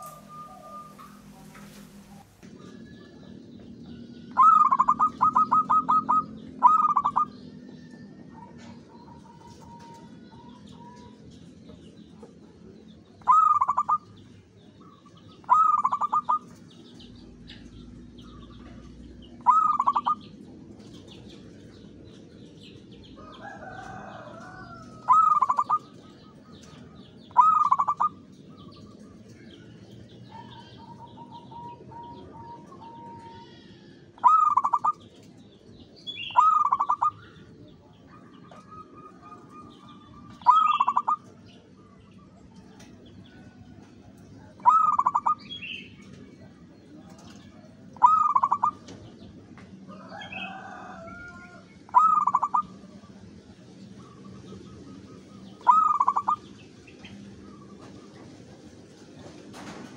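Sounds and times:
dove cooing: 0.0 - 3.6, 4.2 - 11.2, 13.2 - 16.9, 18.4 - 21.7, 23.2 - 29.4, 30.2 - 35.3, 36.2 - 41.4, 44.4 - 46.3, 47.9 - 49.0, 49.9 - 53.1, 54.0 - 56.5
small birds chirping: 0.0 - 59.9.

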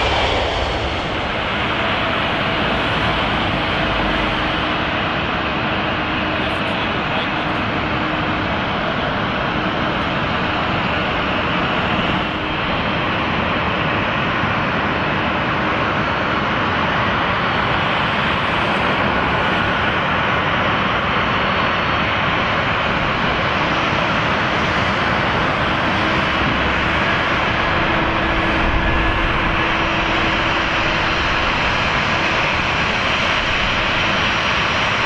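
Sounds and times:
aircraft engines running: 0.0 - 35.0
faint steady whine: 0.0 - 35.0.

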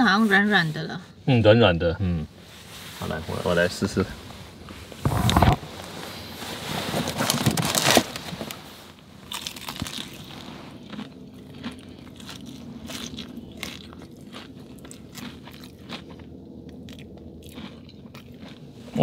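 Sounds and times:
crackling chewing: 8.9 - 19.0
crunch of biting fried chicken: 9.3 - 18.7.

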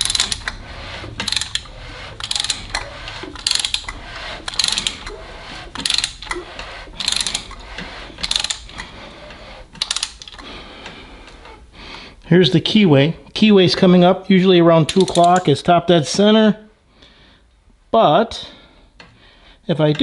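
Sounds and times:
socket ratchet clicking: 0.0 - 0.6, 1.2 - 5.0, 5.8 - 6.4, 7.0 - 7.6, 8.2 - 8.8, 9.8 - 10.5, 14.9 - 15.5.

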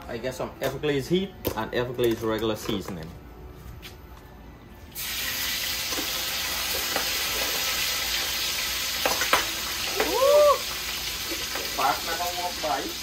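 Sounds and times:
crab deep-frying in oil: 4.9 - 13.0.

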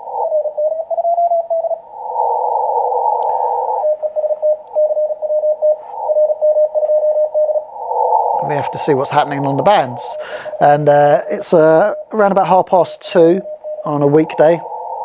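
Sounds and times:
morse code tone: 3.3 - 7.7, 8.4 - 14.8
radio band hiss: 8.4 - 15.0.

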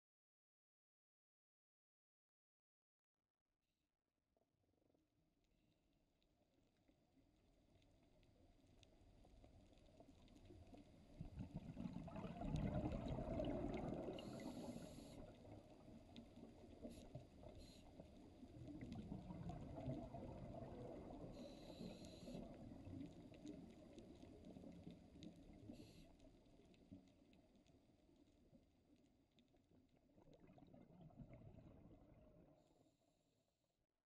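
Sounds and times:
underwater exhaled air bubbling: 11.0 - 26.1, 30.1 - 32.6.

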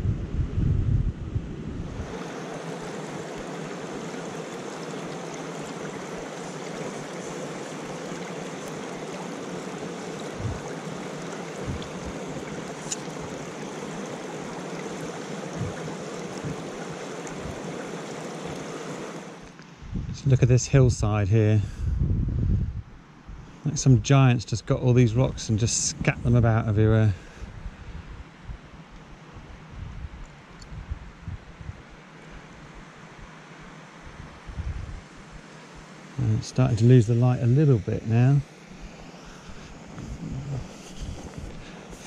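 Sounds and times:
wind buffeting microphone: 0.0 - 3.4, 8.9 - 19.1, 19.8 - 24.0, 29.4 - 31.9, 34.1 - 35.4, 39.5 - 42.0
stream running over rocks: 1.9 - 19.6, 35.1 - 42.0.

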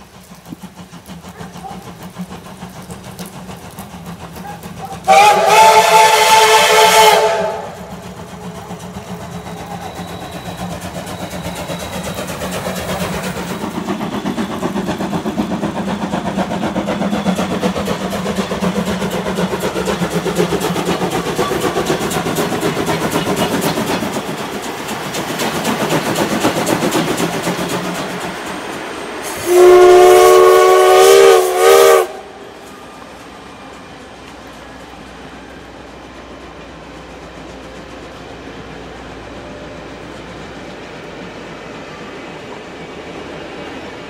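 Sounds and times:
steam train rumbling past: 0.0 - 44.0.

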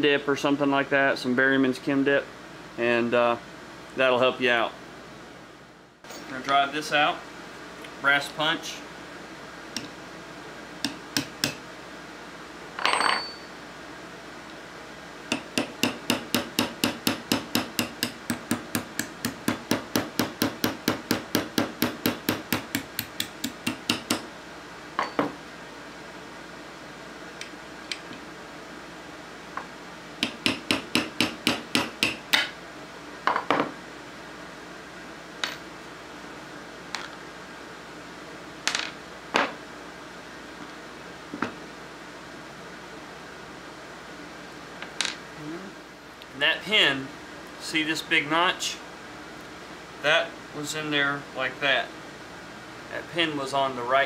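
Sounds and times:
hammer tapping metal punch: 10.8 - 11.6, 15.3 - 24.3, 30.2 - 32.5.

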